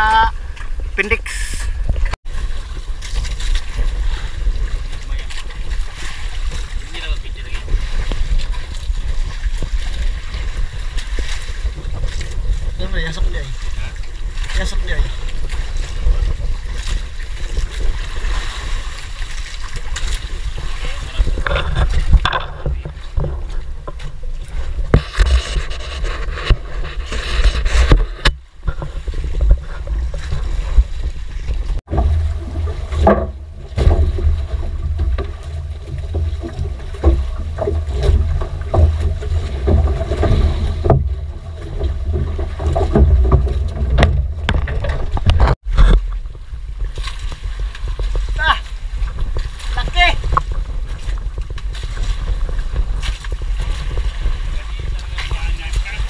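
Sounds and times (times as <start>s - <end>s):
sea noise: 0.0s - 56.0s
wind buffeting microphone: 0.0s - 56.0s
knocks on boat: 27.7s - 48.4s.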